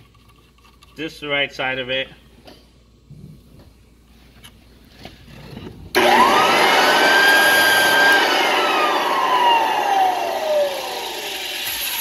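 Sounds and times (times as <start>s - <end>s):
floor edger whine winding down: 5.9s - 12.0s.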